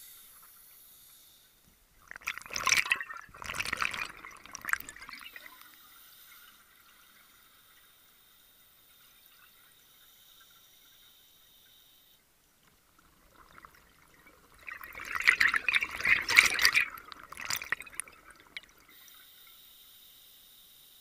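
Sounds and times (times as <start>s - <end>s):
underwater exhaust bubbles rushing: 2.0s - 5.7s, 13.0s - 18.9s.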